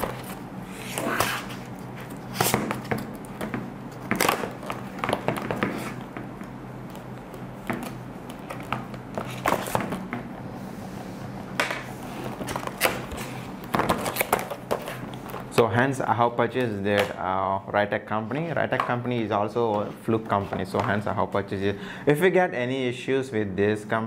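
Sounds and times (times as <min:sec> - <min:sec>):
knife scraping plastic blister pack: 0:12.4 - 0:15.2.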